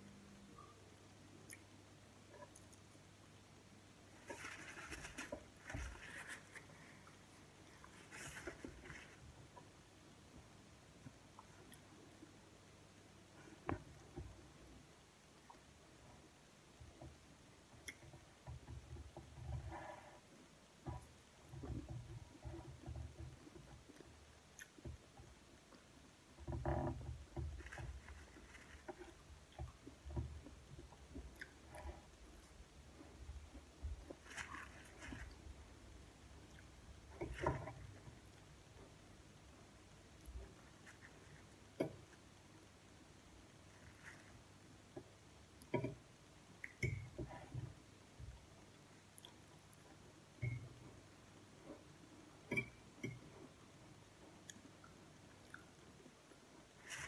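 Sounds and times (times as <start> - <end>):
paper napkin rustling: 4.2 - 7.0, 7.7 - 9.2
chewing: 54.4 - 56.4.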